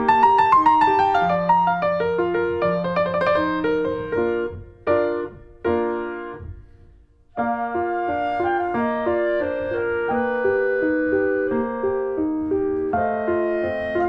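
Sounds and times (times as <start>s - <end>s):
piano chords: 0.0s - 14.0s.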